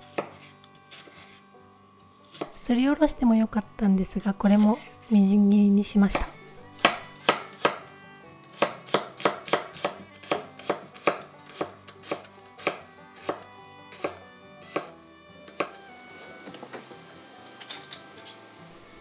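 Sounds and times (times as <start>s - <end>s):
knife chopping on wooden board: 0.0s - 1.2s, 2.3s - 2.6s, 6.1s - 7.8s, 8.5s - 14.9s, 15.5s - 15.8s.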